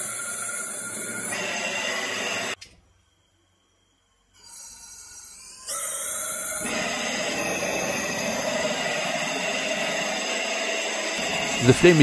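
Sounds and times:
propane torch rushing hiss: 0.0 - 2.6, 6.6 - 12.0.

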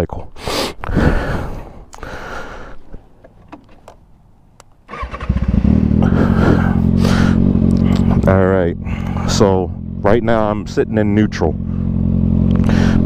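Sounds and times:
motorcycle engine idling: 4.9 - 13.0.

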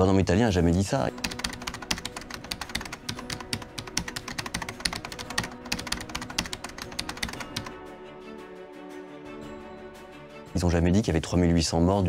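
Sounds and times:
keyboard typing clicks: 1.2 - 7.7.

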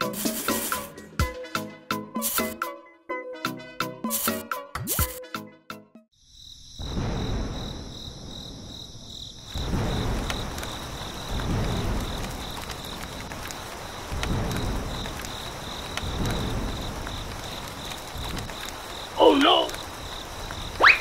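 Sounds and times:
crickets chirping: 6.1 - 21.0.

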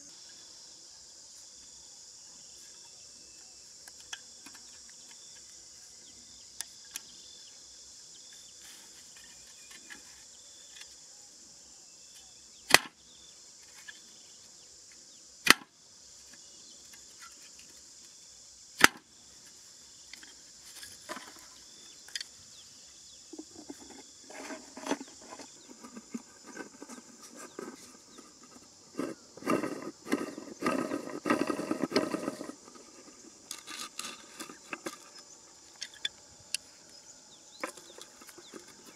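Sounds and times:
insect chorus: 0.0 - 38.9
plastic bottle and sticks handled: 3.4 - 5.6, 8.3 - 11.0, 18.8 - 22.4, 23.3 - 38.9.

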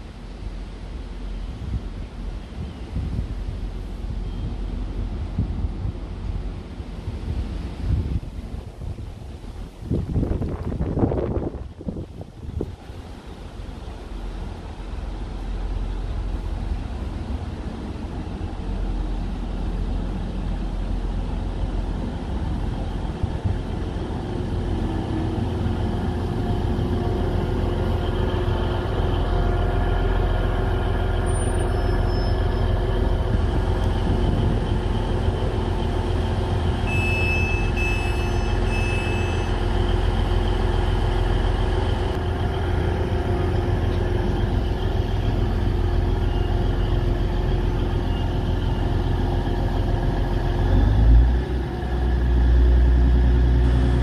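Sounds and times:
diesel train engine rumble: 0.0 - 54.0
short high beeps: 36.9 - 39.6.

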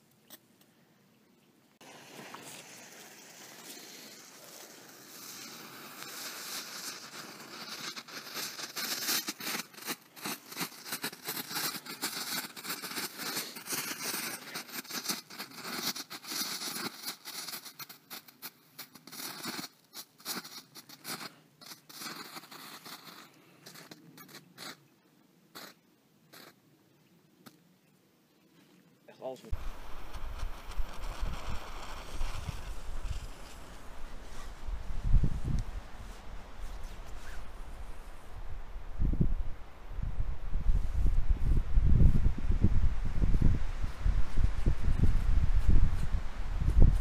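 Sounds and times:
firework hissing and crackling: 1.8 - 24.8, 25.6 - 26.6, 29.5 - 39.6.

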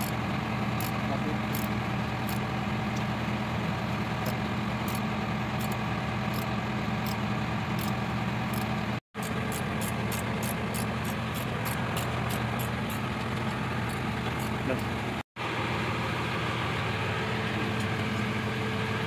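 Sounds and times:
engine idling hum: 0.0 - 19.0
spanner ticking on bolt: 0.8 - 2.4, 4.2 - 5.0, 5.6 - 7.2, 7.8 - 14.9.

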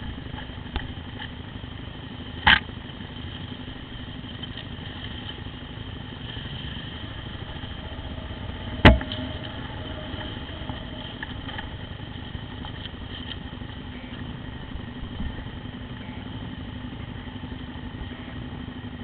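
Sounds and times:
motorcycle engine running: 0.0 - 19.0
sharp knocks: 8.7 - 9.6.

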